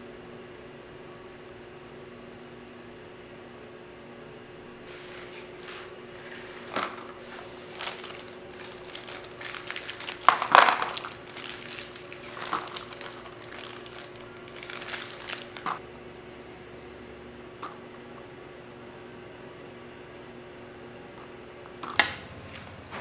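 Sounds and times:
steady low hum: 0.0 - 23.0
paper crinkling and rustling: 4.9 - 15.8.

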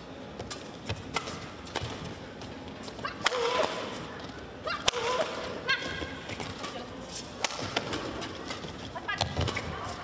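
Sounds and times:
rackets hitting shuttlecock: 0.4 - 2.1, 3.1 - 4.0, 4.8 - 9.7.

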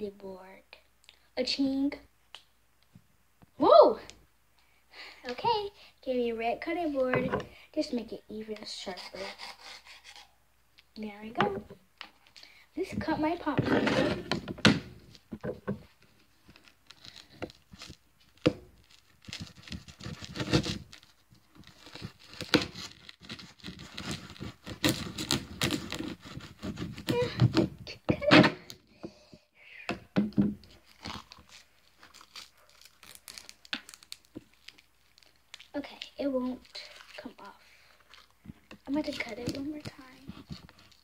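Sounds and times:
knife knocks and scrapes: 7.1 - 7.5
plastic wrapper crinkling and tearing: 15.9 - 27.7, 30.6 - 41.0.

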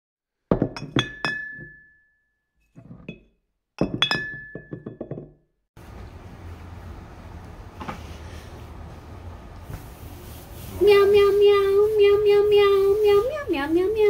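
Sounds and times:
glassy clinking jingle: 0.7 - 2.0, 3.8 - 5.3.

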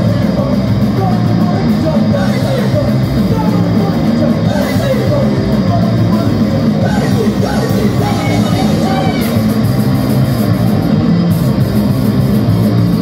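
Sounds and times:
drum kit: 0.0 - 13.0
electric guitars: 0.0 - 13.0.

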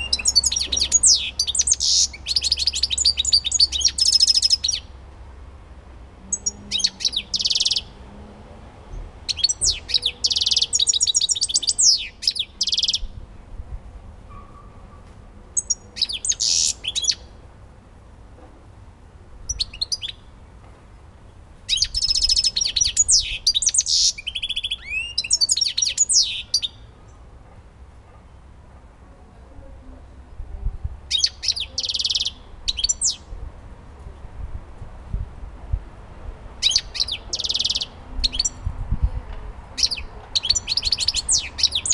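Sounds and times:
bird twittering and trilling: 0.0 - 4.9, 6.3 - 8.0, 9.3 - 13.1, 15.6 - 17.4, 19.5 - 20.3, 21.7 - 26.9, 31.1 - 33.3, 36.6 - 38.7, 39.8 - 41.9.

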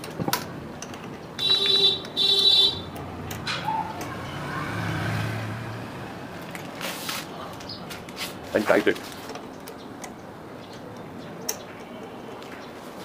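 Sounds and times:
electric vehicle horn beeps: 1.4 - 2.9.

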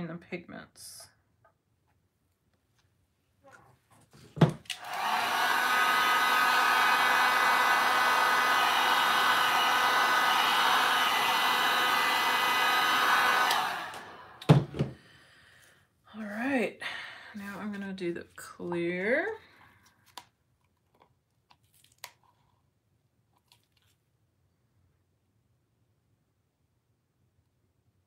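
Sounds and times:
heat gun fan whine: 4.6 - 14.6.

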